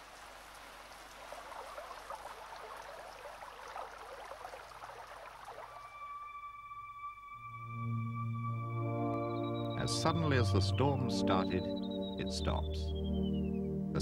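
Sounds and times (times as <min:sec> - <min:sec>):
heavy rain pattering: 0:00.0 - 0:05.9
electronic background music: 0:05.8 - 0:14.0.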